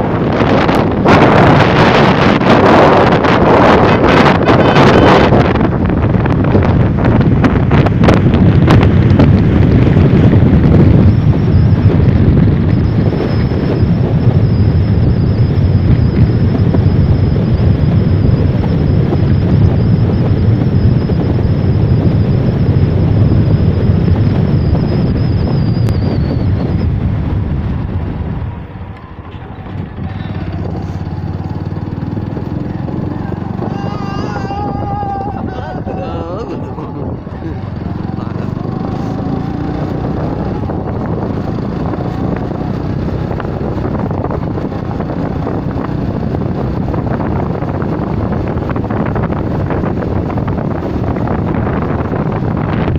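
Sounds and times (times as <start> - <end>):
vehicle running and road noise: 0.0 - 52.9
wind buffeting microphone: 0.0 - 52.9
thin high whine: 28.4 - 41.2.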